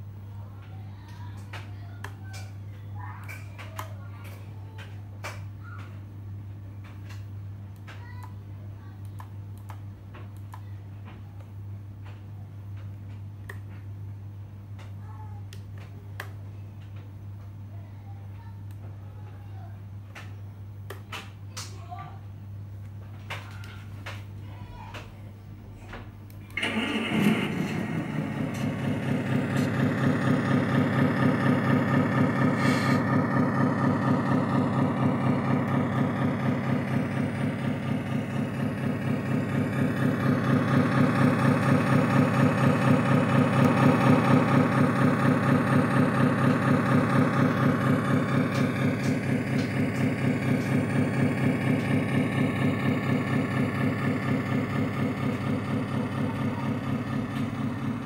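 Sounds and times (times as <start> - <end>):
diesel truck engine idling: 26.6 - 58.0.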